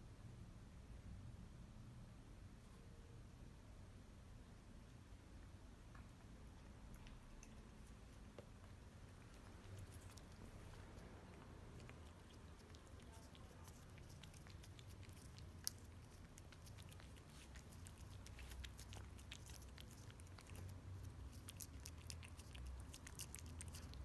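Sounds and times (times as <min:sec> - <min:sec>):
kitten licking wet clicks: 0:06.6 - 0:24.0.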